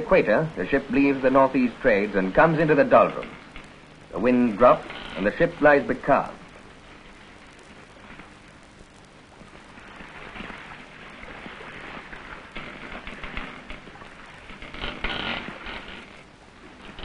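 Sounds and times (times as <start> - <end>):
old film hiss and crackle: 0.0 - 17.0
water sloshing around ship bow: 9.3 - 17.0.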